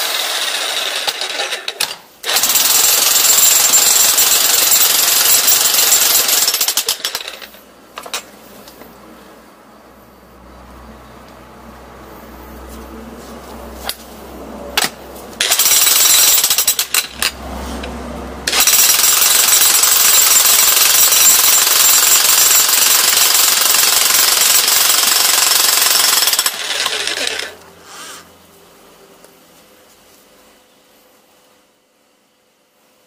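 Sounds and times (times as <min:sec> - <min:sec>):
demolition hammer chiselling stone: 0:00.0 - 0:07.4, 0:18.5 - 0:27.5.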